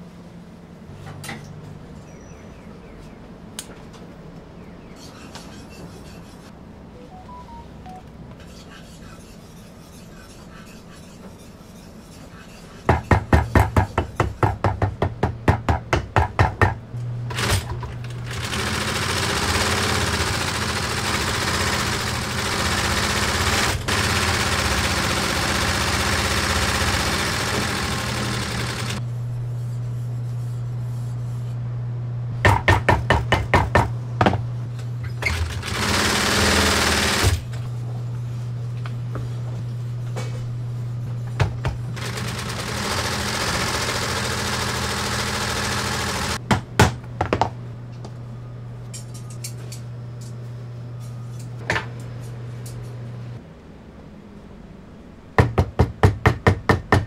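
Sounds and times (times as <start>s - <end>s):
sewing machine motor hum: 17.3s - 29.0s, 35.2s - 37.6s, 41.9s - 46.4s
sewing machine stitching: 17.3s - 29.0s, 35.2s - 37.5s, 42.0s - 46.4s.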